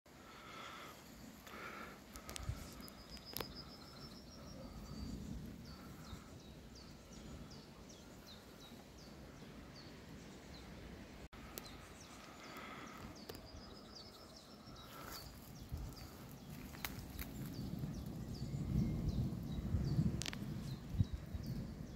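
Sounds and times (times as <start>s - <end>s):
songbirds calling: 0.1s - 21.9s.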